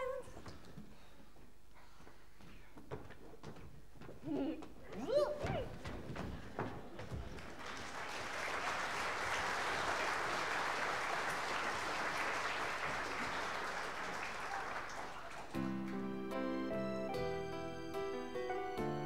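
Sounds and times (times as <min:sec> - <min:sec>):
audience applauding: 0:07.0 - 0:17.1
instrumental music with held notes: 0:15.6 - 0:19.0.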